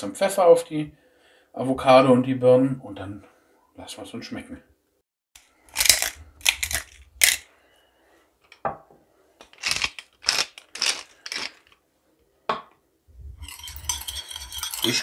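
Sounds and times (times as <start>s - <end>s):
pepper mill grinding: 5.7s - 7.4s, 9.4s - 11.8s, 13.4s - 15.0s.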